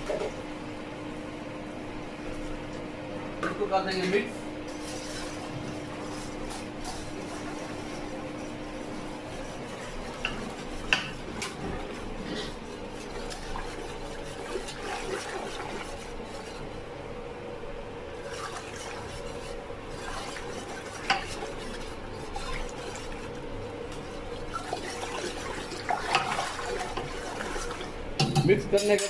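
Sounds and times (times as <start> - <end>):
whisk sloshing batter: 4.3 - 28.2
whisk clinking against pot: 9.2 - 12.1, 18.3 - 23.3.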